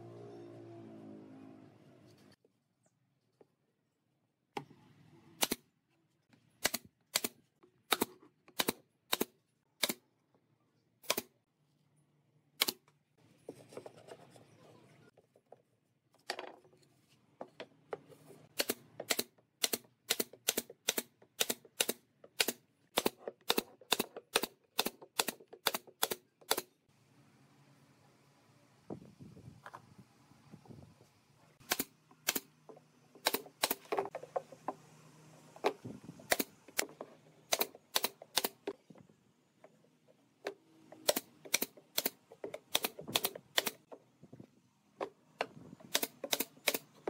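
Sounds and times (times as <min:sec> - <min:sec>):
nail gun firing: 0:05.4 - 0:05.6, 0:06.6 - 0:10.0, 0:11.0 - 0:11.3, 0:18.6 - 0:26.7, 0:31.6 - 0:32.5, 0:33.2 - 0:34.0, 0:36.3 - 0:36.9, 0:37.5 - 0:38.7, 0:41.0 - 0:43.8, 0:45.8 - 0:47.0.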